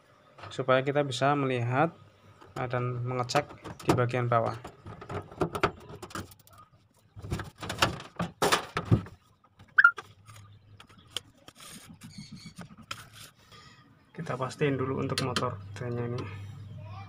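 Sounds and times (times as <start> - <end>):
metal squeak: 9.8 - 10.0.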